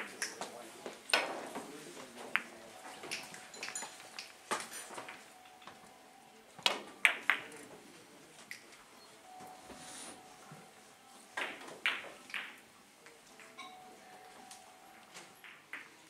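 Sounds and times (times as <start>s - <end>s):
billiard balls clicking: 1.1s - 5.9s, 6.6s - 7.8s, 11.4s - 12.7s, 15.0s - 16.0s.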